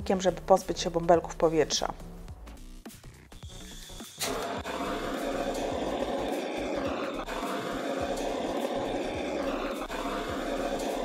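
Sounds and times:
kitchen torch hissing: 3.5 - 11.0.

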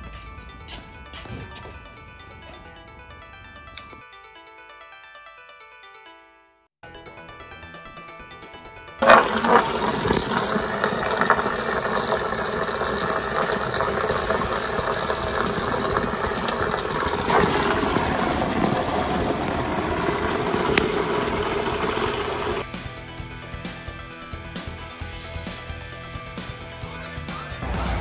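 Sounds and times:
coolant splashing into a pan: 9.0 - 22.7.

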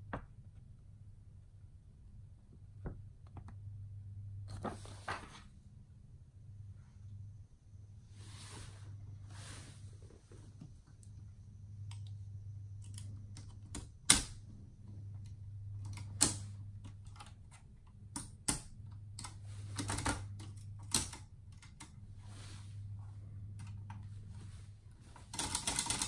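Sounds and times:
low steady hum: 0.0 - 26.0
typewriter mechanical clicks: 12.8 - 14.4, 15.8 - 21.9, 25.3 - 26.0.

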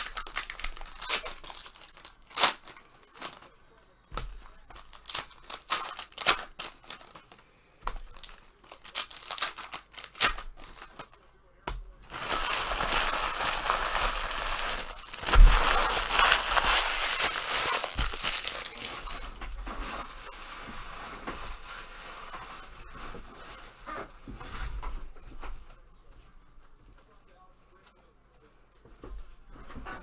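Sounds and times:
wrappers crinkling and tearing: 0.0 - 11.2, 12.0 - 20.6.

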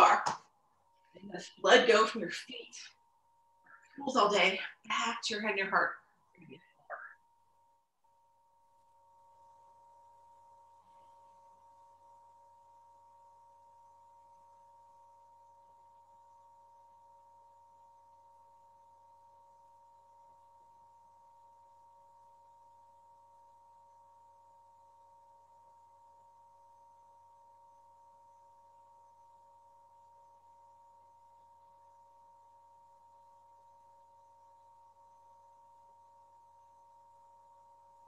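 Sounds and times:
faint high tone: 0.0 - 0.4, 1.2 - 3.0, 3.7 - 7.3
weak low tone: 3.7 - 7.3.

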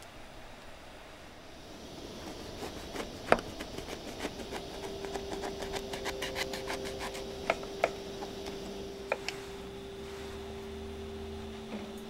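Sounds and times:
faint steady tone: 0.0 - 12.0
knife cutting crusty bread: 2.3 - 7.3.

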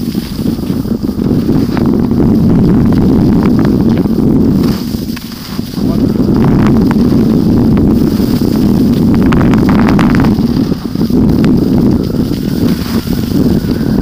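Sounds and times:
skis scraping over snow: 0.0 - 14.0
wind buffeting microphone: 0.0 - 14.0.

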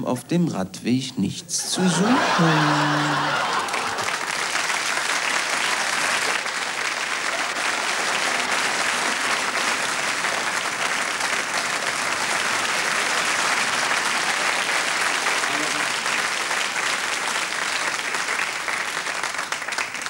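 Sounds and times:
audience applauding: 1.8 - 20.0.

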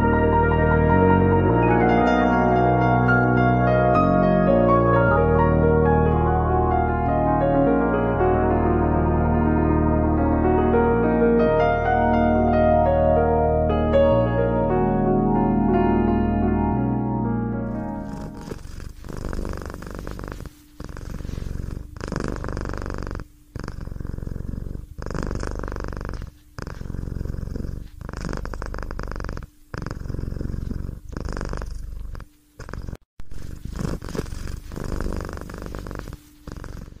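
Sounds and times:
cat purring: 17.7 - 37.0.

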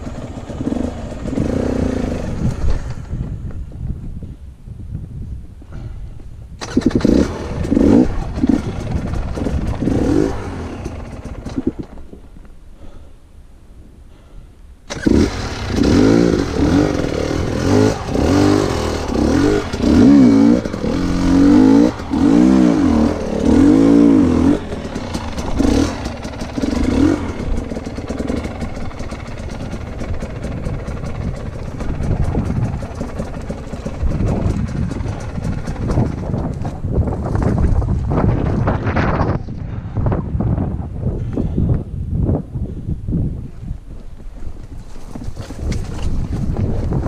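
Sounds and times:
dirt bike engine revving: 0.0 - 3.1, 6.6 - 12.0, 14.9 - 36.6.

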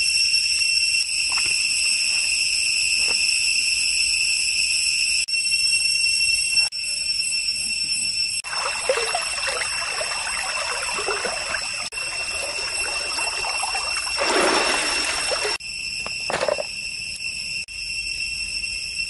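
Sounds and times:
high-pitched ringing drone: 0.0 - 19.0
stream water splashing and trickling: 8.4 - 15.6.

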